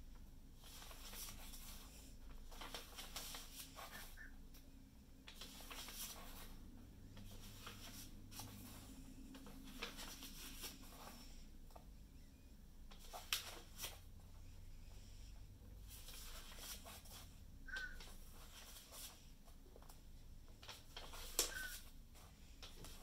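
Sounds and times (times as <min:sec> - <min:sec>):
paper pages being turned: 0:00.6 - 0:04.3, 0:05.3 - 0:11.4, 0:12.9 - 0:14.0, 0:15.9 - 0:23.0.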